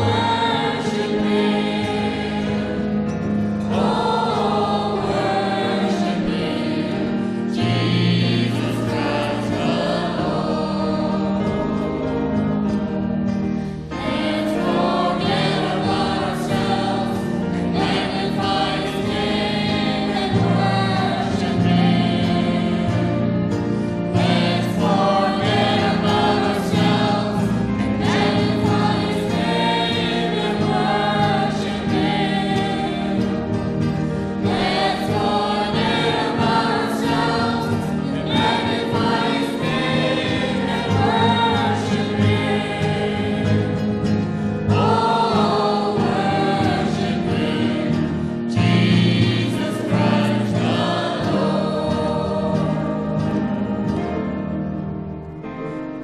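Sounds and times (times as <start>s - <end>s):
group singing worship song: 0.0s - 54.9s.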